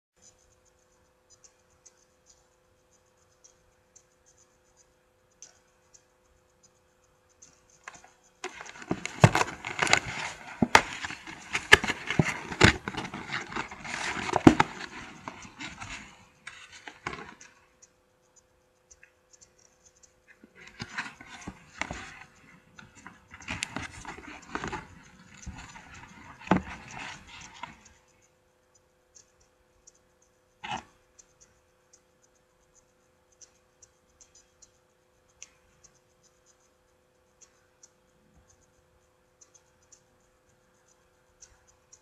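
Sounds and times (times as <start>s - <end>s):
paper bag rustling and crinkling: 8.4s - 17.3s.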